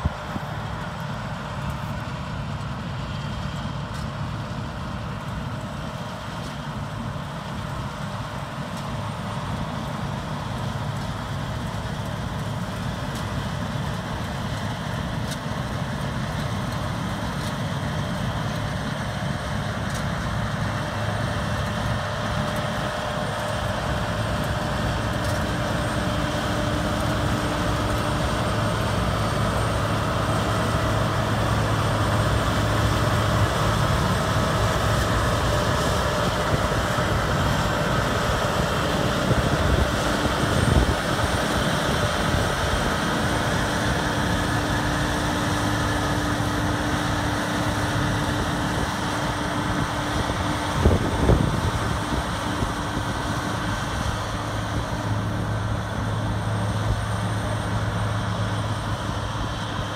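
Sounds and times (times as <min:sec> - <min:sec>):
combine harvester droning: 0:00.0 - 0:59.9.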